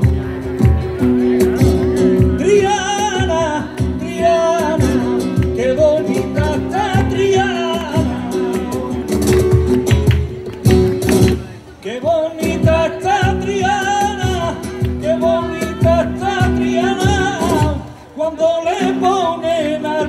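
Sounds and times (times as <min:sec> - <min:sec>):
rhythmic instrumental accompaniment: 0:00.0 - 0:18.1
person singing with vibrato: 0:02.3 - 0:09.2.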